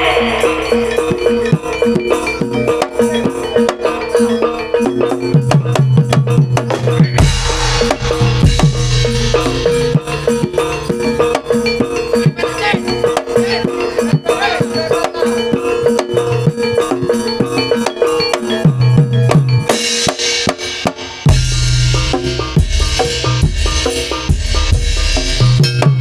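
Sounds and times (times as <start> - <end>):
steady held tone: 0.0 - 5.2, 6.8 - 16.4
drums: 0.0 - 26.0
ringing metal notes: 0.0 - 26.0.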